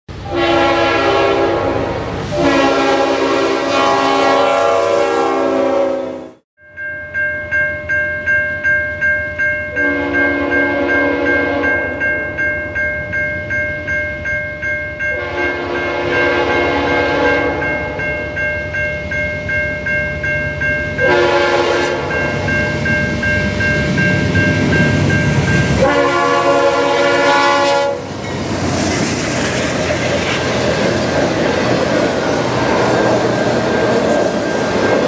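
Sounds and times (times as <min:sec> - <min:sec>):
train air horn blasts: 0:00.2 - 0:06.4, 0:09.8 - 0:11.9, 0:15.1 - 0:18.0, 0:21.0 - 0:22.4, 0:25.7 - 0:28.2
bell ringing: 0:06.6 - 0:21.4, 0:22.0 - 0:25.9
train cars clattering over rails: 0:28.1 - 0:35.0.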